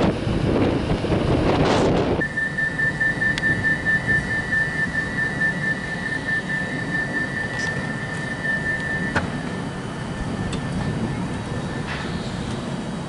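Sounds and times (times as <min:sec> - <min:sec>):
low hum of standing train: 0:00.0 - 0:13.0
rapidly pulsing door warning beep: 0:02.2 - 0:12.3.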